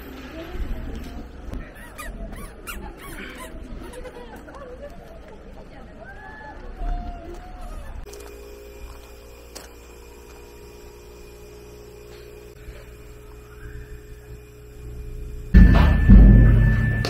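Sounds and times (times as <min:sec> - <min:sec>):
steady low hum: 0:07.8 - 0:17.0
held steady tones: 0:08.0 - 0:17.0.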